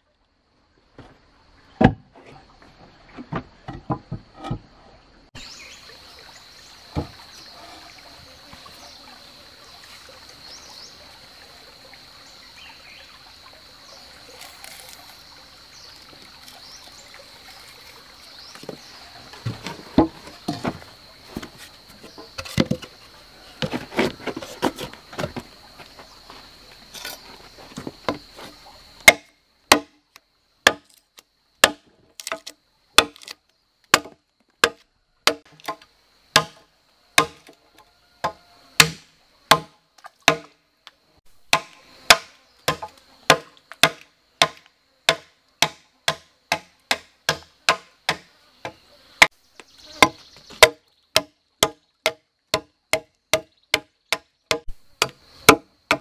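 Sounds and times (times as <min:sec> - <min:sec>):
faint forest background: 0:00.0 - 0:56.0
wooden knocks: 0:03.2 - 0:04.6, 0:18.6 - 0:23.0
high insect drone: 0:05.3 - 0:51.4, 0:52.9 - 0:56.0
axe chopping into a log: 0:29.0 - 0:30.0, 0:30.6 - 0:30.9, 0:31.6 - 0:33.3, 0:33.9 - 0:36.6, 0:37.2 - 0:37.5, 0:38.2 - 0:40.6, 0:41.5 - 0:49.3, 0:50.0 - 0:56.0.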